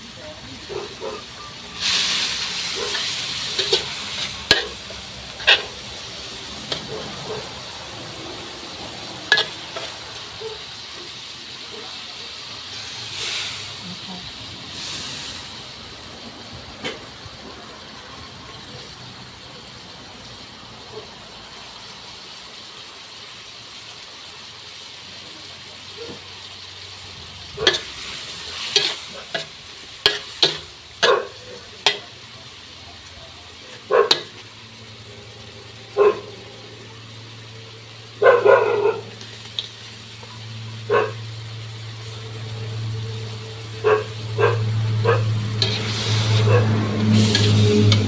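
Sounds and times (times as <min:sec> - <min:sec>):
food sizzling in a wok: 0:00.0 - 0:48.0
dog barking: 0:00.6 - 0:01.3, 0:02.7 - 0:03.1, 0:06.8 - 0:07.6, 0:10.4 - 0:10.7, 0:20.9 - 0:21.1, 0:26.0 - 0:26.2, 0:31.0 - 0:31.6, 0:33.8 - 0:34.3, 0:35.9 - 0:36.5, 0:38.2 - 0:39.2, 0:40.9 - 0:41.2, 0:43.8 - 0:45.4, 0:46.4 - 0:46.8.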